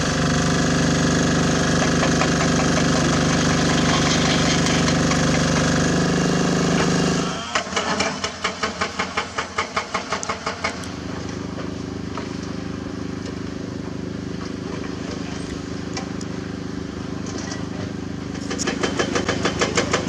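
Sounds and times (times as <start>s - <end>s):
excavator diesel engine running: 0.0s - 12.1s
hydraulic breaker hammering rock: 0.1s - 6.1s, 6.7s - 10.9s, 18.3s - 20.0s.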